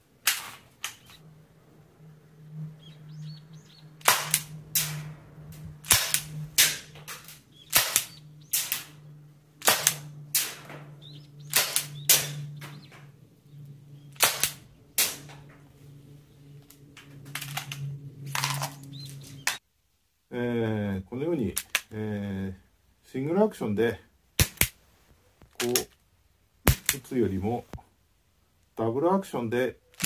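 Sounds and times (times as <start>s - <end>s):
gas revolver firing sharp cracks: 0.2s - 1.1s, 4.0s - 13.0s, 14.0s - 15.5s, 24.4s - 24.8s, 26.6s - 27.1s.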